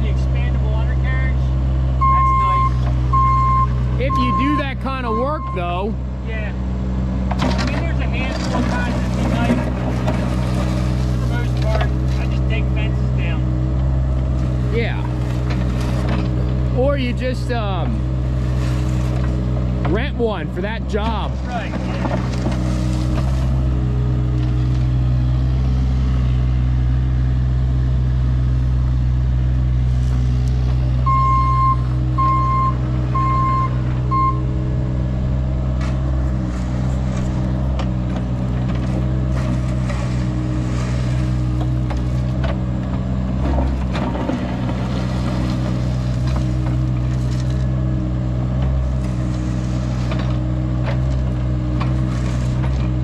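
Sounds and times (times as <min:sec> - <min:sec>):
excavator diesel engine running: 0:00.0 - 0:53.0
short electronic beeps: 0:02.0 - 0:05.9, 0:31.1 - 0:34.5
bucket scraping gravel: 0:07.4 - 0:12.7, 0:14.4 - 0:16.5, 0:18.3 - 0:20.1, 0:21.0 - 0:23.8, 0:35.8 - 0:42.5, 0:43.3 - 0:47.7, 0:48.8 - 0:53.0.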